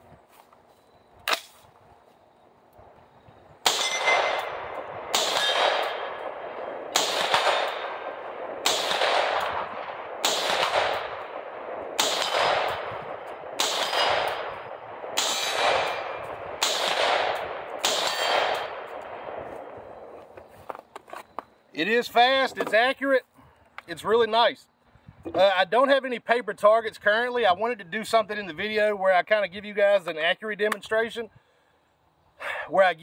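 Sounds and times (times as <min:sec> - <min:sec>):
rifle shots: 0:03.6 - 0:20.2
steel targets ringing: 0:03.7 - 0:06.3, 0:13.6 - 0:16.3, 0:17.8 - 0:18.8.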